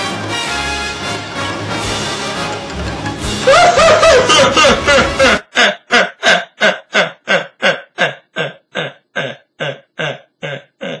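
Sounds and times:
gruff vocal sounds: 5.1 - 11.0.

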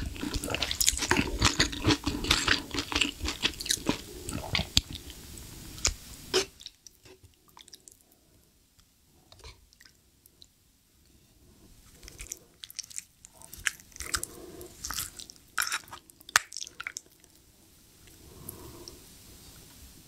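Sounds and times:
wet chewing and slurping: 0.0 - 5.2, 12.0 - 17.3.

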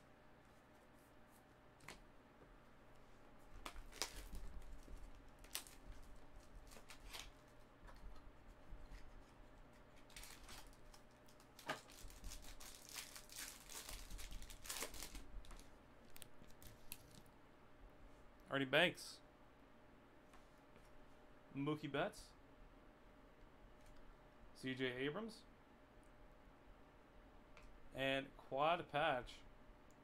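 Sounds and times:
foil wrapper tearing and crinkling: 3.7 - 7.3, 10.0 - 15.6.

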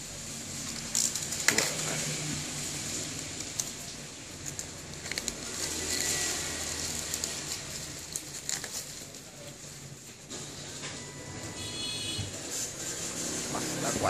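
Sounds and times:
plastic wrap crinkling: 0.0 - 10.3.

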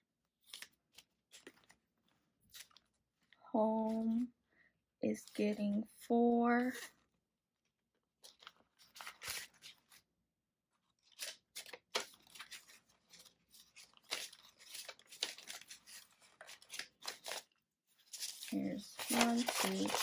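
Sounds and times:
paper bills and plastic rustling: 0.4 - 4.3, 8.2 - 10.0, 10.9 - 20.0.

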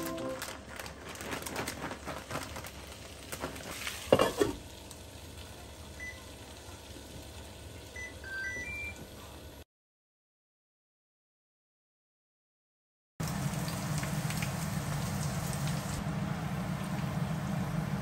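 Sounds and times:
shredded cheese rustling: 0.0 - 4.1
plastic bag rustling: 0.0 - 4.5
glass pan lid clanking: 4.1 - 4.6
cooktop control beeps: 5.9 - 6.6, 7.8 - 9.3.

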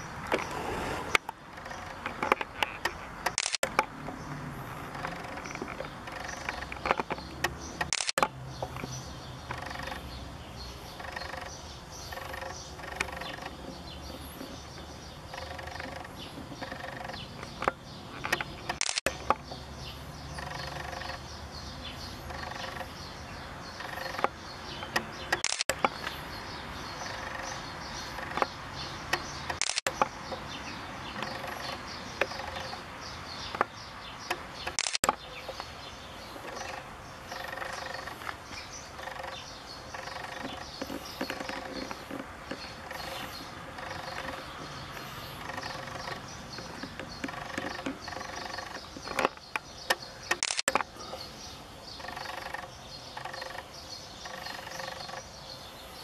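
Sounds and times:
birds chirping: 0.0 - 56.0
short sharp clicks: 3.2 - 3.9, 6.2 - 8.3, 17.6 - 19.2, 24.9 - 25.9, 29.2 - 30.1, 34.3 - 35.2, 49.2 - 50.9.

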